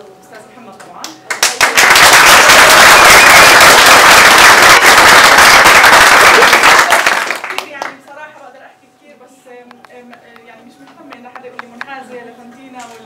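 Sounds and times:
crowd clapping: 1.3 - 8.0.

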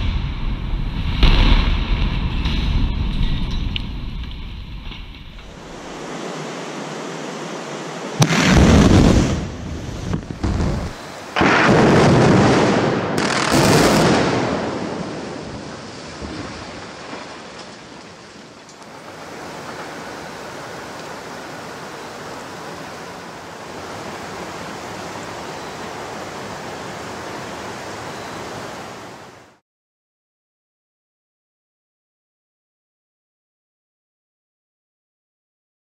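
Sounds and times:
explosive charges cracking: 0.0 - 4.6, 8.2 - 15.3
flowing river water: 5.4 - 8.3, 10.8 - 11.4, 14.8 - 29.6.

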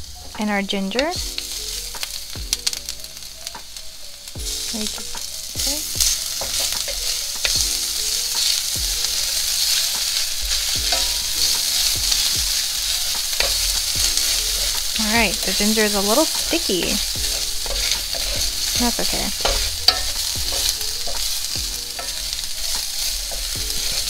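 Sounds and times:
garlic sizzling in hot oil: 0.0 - 24.0
utensil scraping a pan: 5.8 - 24.0.

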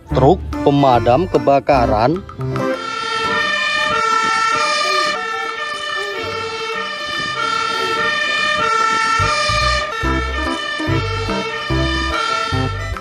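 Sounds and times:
fire engine siren: 2.8 - 13.0.

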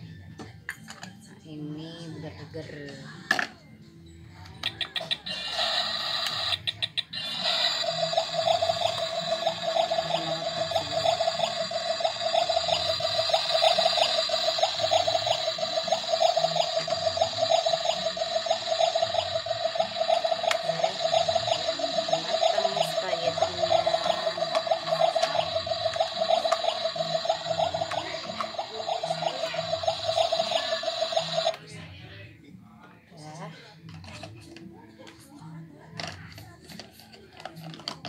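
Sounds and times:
toy stove electronic cooking sound: 4.4 - 31.6.

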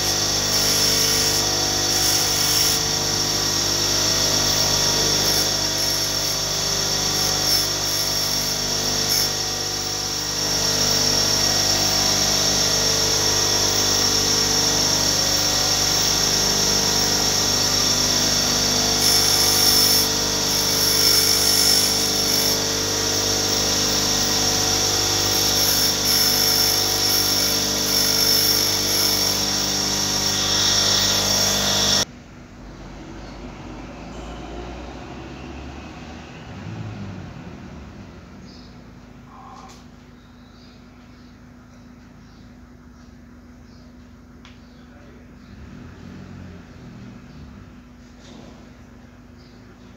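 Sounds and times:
bench grinder running: 0.0 - 32.1
wire grinding scrape: 0.0 - 32.1.

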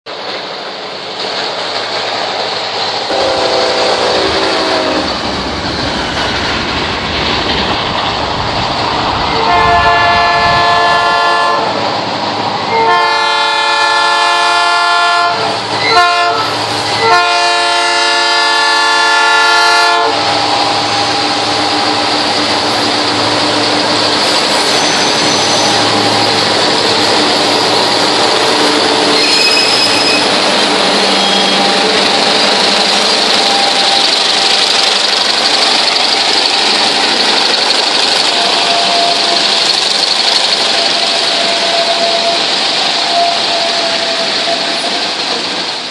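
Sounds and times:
freight train rumbling on rails: 0.0 - 45.9
locomotive horn blasts: 3.1 - 5.2, 9.3 - 11.8, 12.7 - 20.9, 38.3 - 39.5, 40.8 - 44.8.

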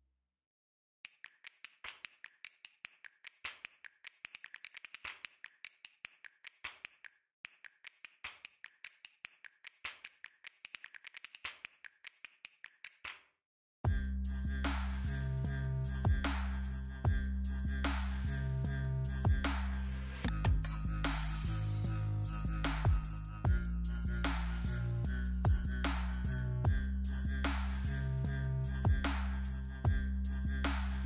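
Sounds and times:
rapid sharp clicks and taps: 1.1 - 13.2.

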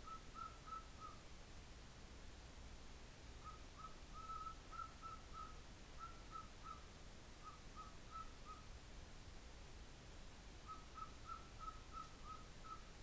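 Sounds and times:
cockatiel short calls: 0.0 - 1.2, 3.4 - 8.7, 10.6 - 12.9.

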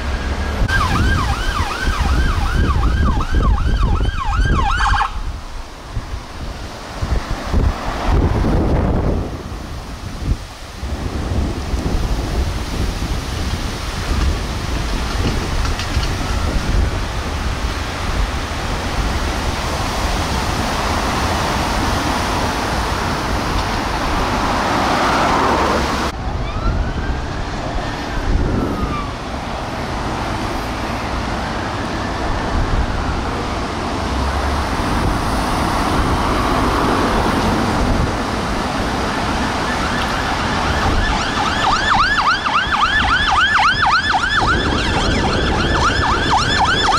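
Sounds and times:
yelp siren: 0.0 - 5.2, 26.3 - 29.3, 38.8 - 46.9
wailing sirens: 0.0 - 5.4, 14.0 - 18.2, 19.9 - 46.9
road traffic noise: 0.0 - 46.9.

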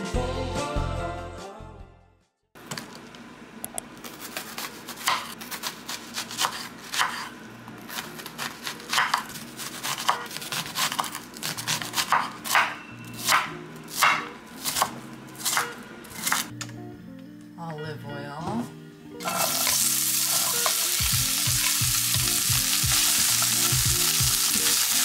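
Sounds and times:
knife chopping on wooden board: 4.3 - 7.3, 7.9 - 16.5.

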